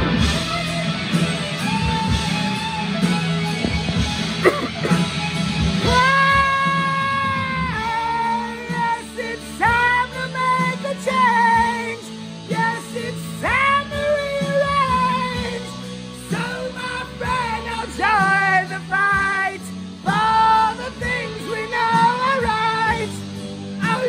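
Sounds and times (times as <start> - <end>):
sustained backing music: 0.0 - 24.0
man singing in a strained voice: 5.8 - 24.0.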